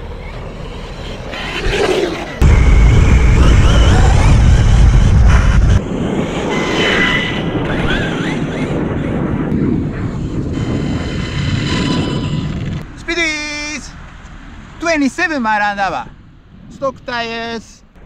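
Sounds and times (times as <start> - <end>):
loud low rumble: 2.4 - 13.0.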